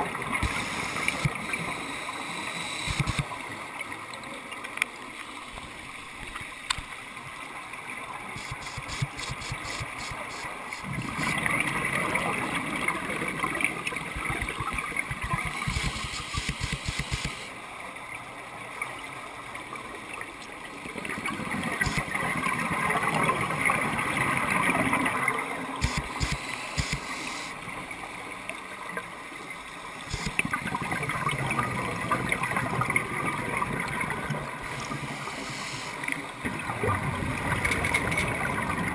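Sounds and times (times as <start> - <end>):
bubbles gurgling and rushing: 8.3 - 17.5, 20.8 - 27.1, 30.0 - 35.4, 36.2 - 38.9
underwater crackling: 8.3 - 17.5, 21.0 - 27.6, 30.0 - 38.9
diver breathing through regulator: 34.8 - 36.0.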